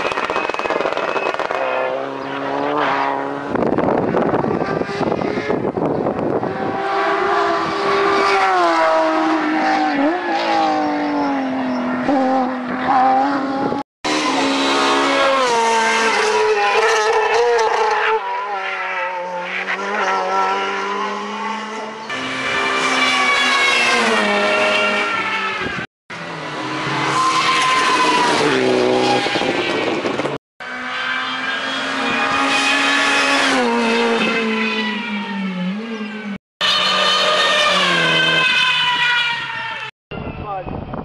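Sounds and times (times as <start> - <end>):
rally car engines revving: 0.0 - 39.9.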